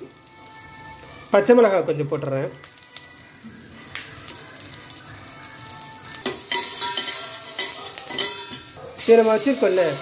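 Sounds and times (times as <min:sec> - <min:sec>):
butter sizzling in a pot: 0:00.0 - 0:10.0
metal spoon stirring: 0:06.2 - 0:09.6.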